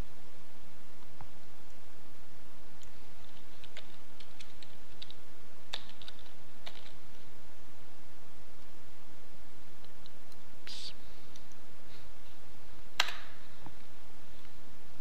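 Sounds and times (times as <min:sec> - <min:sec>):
steady background hiss: 0:00.0 - 0:15.0
keyboard typing: 0:02.8 - 0:07.2.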